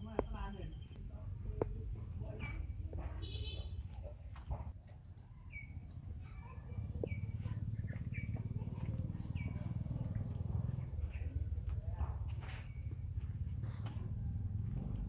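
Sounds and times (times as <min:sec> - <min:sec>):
bird chirping: 0:05.3 - 0:13.3.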